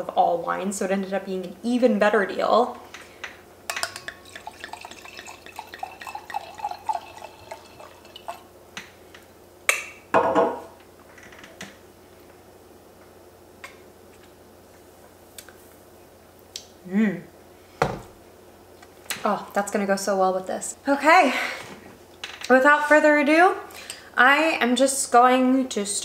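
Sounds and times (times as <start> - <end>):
glass clink: 3.7 - 8.4
wine glugging into a glass: 4.1 - 8.5.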